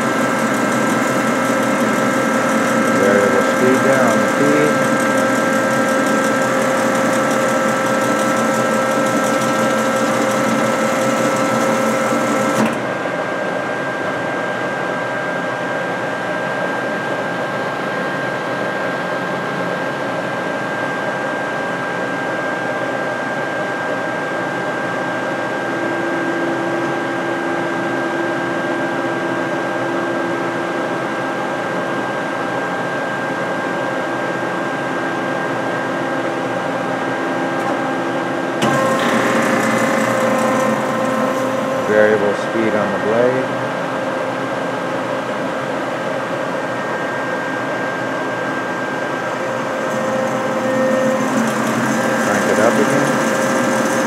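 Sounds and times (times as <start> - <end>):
band saw hum and whine: 0.0 - 20.6, 33.8 - 54.0.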